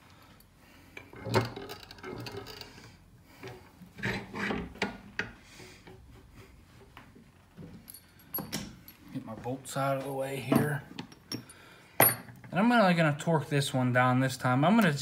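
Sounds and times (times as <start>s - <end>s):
metal clunks and scraping: 0.9s - 7.0s.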